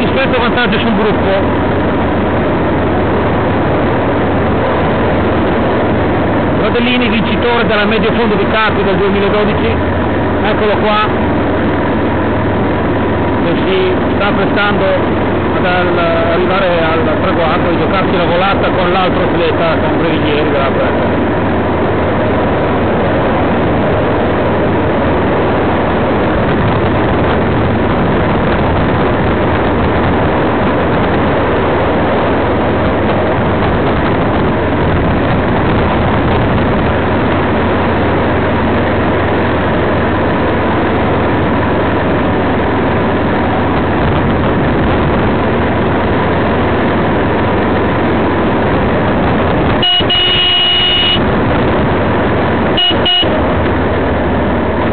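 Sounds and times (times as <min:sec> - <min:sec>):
wind buffeting microphone: 0:20.7 - 0:50.1, 0:51.2 - 0:54.9
high-pitched tone: 0:49.8 - 0:51.3, 0:52.7 - 0:53.5.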